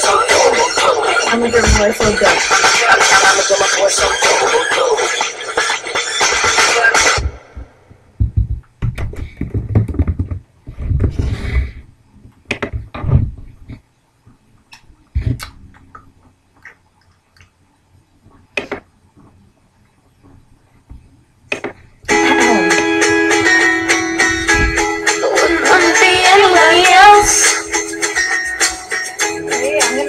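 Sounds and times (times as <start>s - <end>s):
pop song: 0.0s - 7.4s, 22.1s - 30.0s
low thumps: 7.2s - 11.8s, 22.7s - 27.5s.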